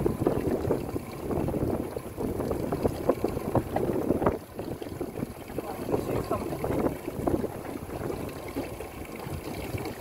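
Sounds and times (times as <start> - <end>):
waves slapping a hull: 0.0 - 10.0
wind buffeting microphone: 0.0 - 10.0.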